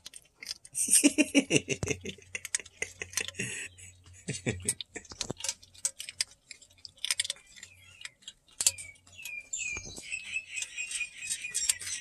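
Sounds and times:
cat crunching dry kibble: 0.0s - 12.0s
birds chirping: 0.8s - 12.0s.

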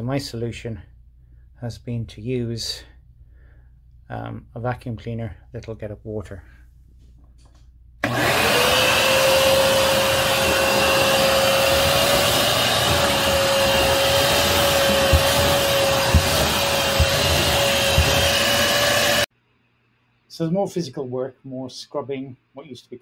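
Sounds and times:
wet vacuum cleaner motor whining: 8.0s - 19.3s.

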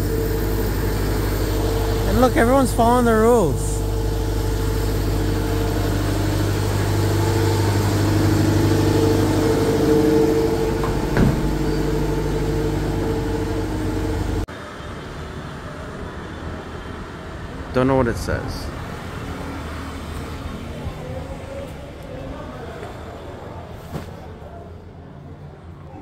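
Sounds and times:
bus engine idling: 0.0s - 17.7s.

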